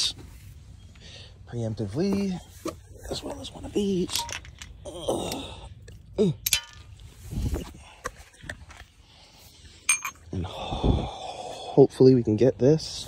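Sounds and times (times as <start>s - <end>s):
metal hand tools clinking: 3.8s - 4.8s, 6.4s - 7.0s, 9.9s - 10.2s.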